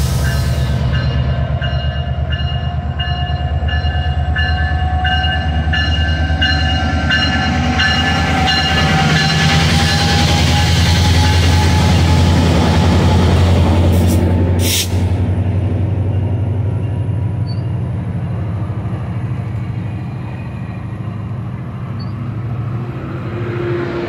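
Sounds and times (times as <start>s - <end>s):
diesel locomotive engine drone: 0.0s - 24.0s
locomotive bell ringing: 0.2s - 10.5s.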